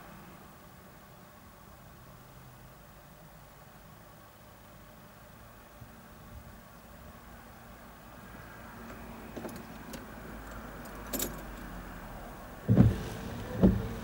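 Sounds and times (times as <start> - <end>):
windscreen wiper sweeping wet glass: 12.4 - 14.0
wiper blade thumps: 12.6 - 14.0.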